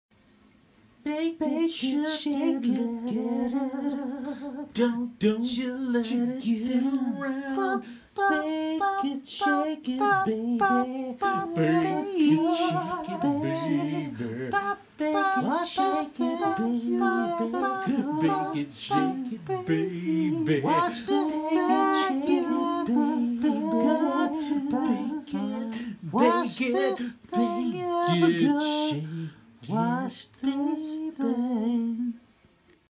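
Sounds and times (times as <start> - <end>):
person singing a cappella: 1.0 - 32.8
breaths: 7.8 - 8.2, 25.7 - 26.0, 29.0 - 29.5.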